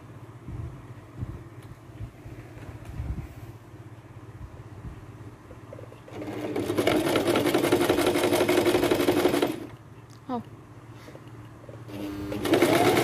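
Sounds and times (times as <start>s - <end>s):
sewing machine stitching: 6.1s - 9.8s, 11.9s - 13.0s.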